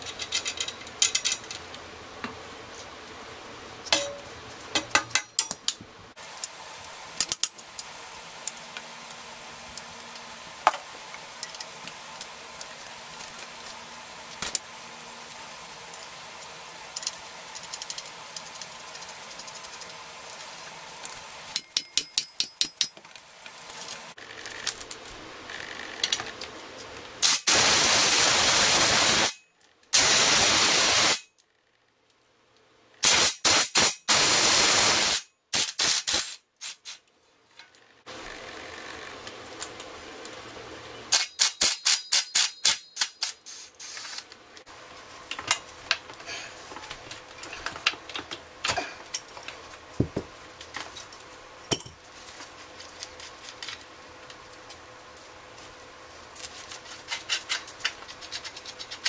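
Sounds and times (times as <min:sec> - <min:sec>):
aerosol spray hissing: 0:27.2 - 0:29.3, 0:30.0 - 0:31.2
rapid clicking of tools: 0:41.1 - 0:44.3
tools scraping metal frame: 0:56.4 - 0:59.0.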